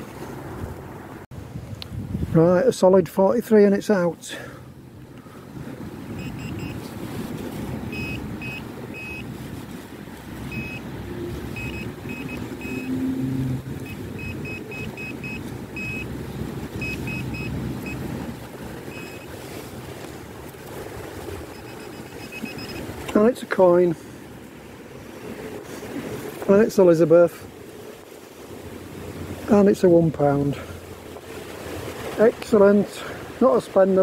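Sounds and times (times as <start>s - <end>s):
wind on microphone: 0.0s - 2.6s
short high electronic beeps: 11.6s - 12.9s, 18.9s - 19.3s, 21.5s - 22.8s.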